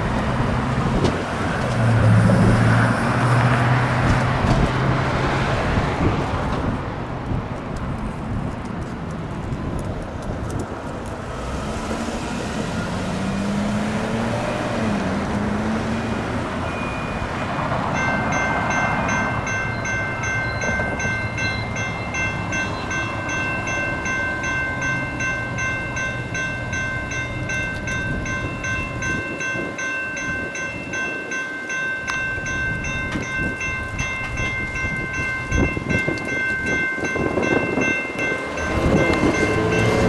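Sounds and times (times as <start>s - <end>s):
train rumble: 0.0s - 40.0s
crossing bell dinging: 15.8s - 40.0s.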